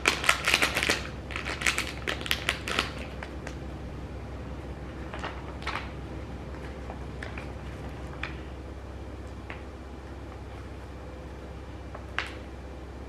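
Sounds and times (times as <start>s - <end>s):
packaging crinkling: 0.0s - 3.6s, 4.9s - 8.5s.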